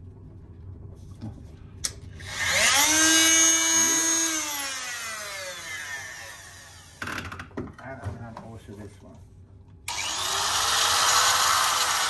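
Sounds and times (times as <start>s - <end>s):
power tool motor whining: 2.2s - 7.2s, 9.9s - 12.0s.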